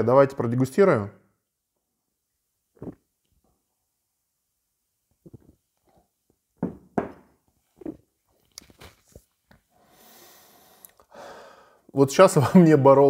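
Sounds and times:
man gulping beer: 2.8 - 3.4, 5.2 - 6.0
mug knocking on table: 6.6 - 7.3.

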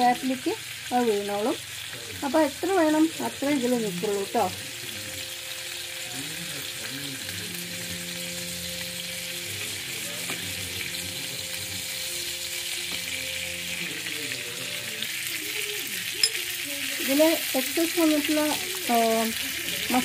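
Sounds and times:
butter sizzling in grill pan: 0.0 - 20.0.

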